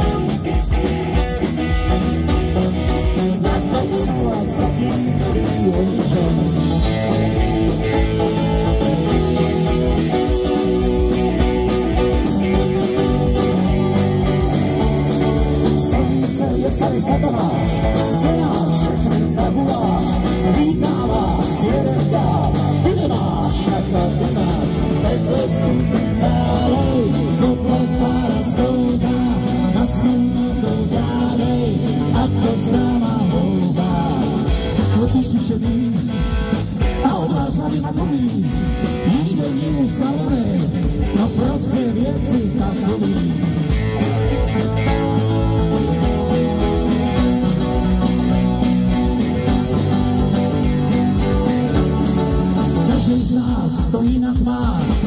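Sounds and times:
bass guitar: 0.0 - 55.0
drum kit: 0.0 - 55.0
electric guitar: 0.0 - 55.0
keyboards: 0.0 - 55.0.

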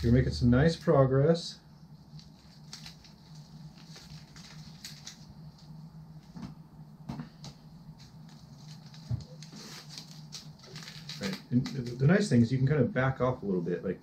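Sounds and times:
grip tape crackling and rustling: 2.0 - 6.4, 7.4 - 12.4.

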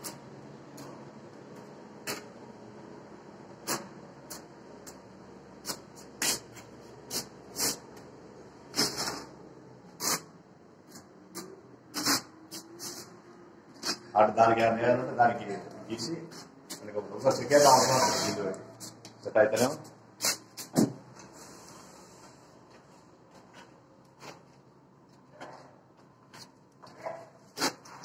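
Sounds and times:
trowel scraping stone slab: 8.7 - 9.3, 17.5 - 18.5.

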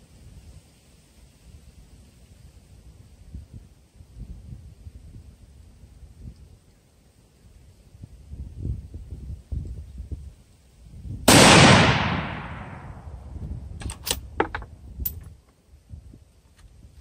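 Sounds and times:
rifle shot: 11.3 - 13.2.

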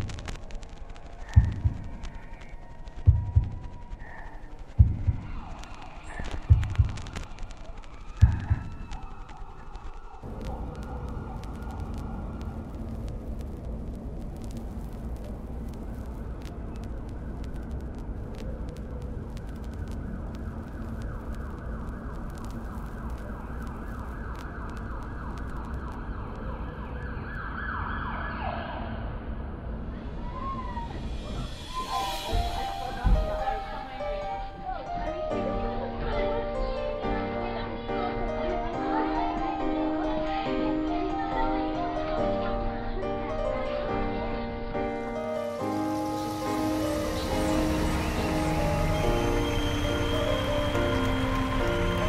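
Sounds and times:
faint crackles: 0.0 - 27.6, 29.8 - 42.2, 43.4 - 52.0
faint siren wailing: 0.0 - 34.9, 45.2 - 52.0
heartbeat double thumps: 1.4 - 2.3, 3.1 - 4.0, 4.7 - 5.6, 6.2 - 7.4, 8.2 - 8.9.

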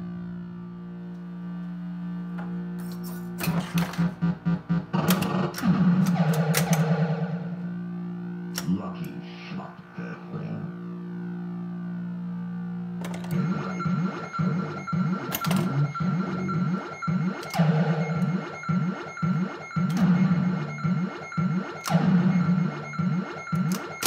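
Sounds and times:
pinball electronic background tones: 2.8 - 8.9, 12.9 - 24.0.

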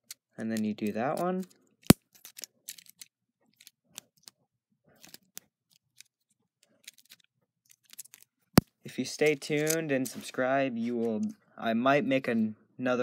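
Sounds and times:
plastic toy pieces clicking together: 0.0 - 4.4, 5.0 - 8.3.

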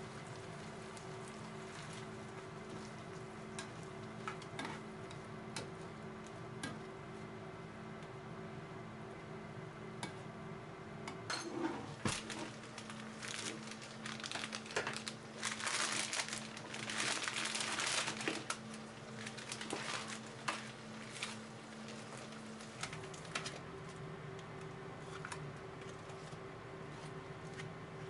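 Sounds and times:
steady low hum: 0.0 - 28.0
plastic pouch crinkling: 12.0 - 23.3.

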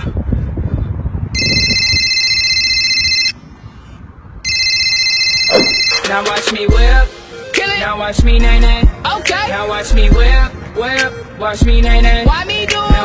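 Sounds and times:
electronic phone ringtone: 1.4 - 3.4, 4.4 - 7.0.

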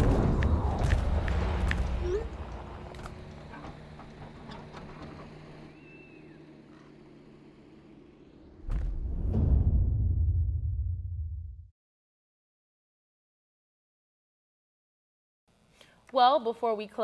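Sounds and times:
loud low rumble: 0.0 - 4.2, 8.4 - 11.7.

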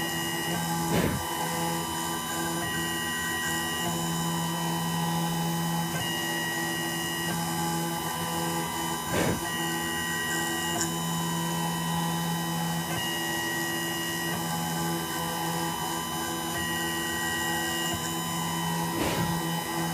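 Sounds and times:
milling machine spindle hum: 0.0 - 19.9
high drive whine: 0.7 - 1.6, 17.8 - 19.6
brief scraping noise: 0.9 - 1.2, 9.1 - 9.4, 19.0 - 19.4.

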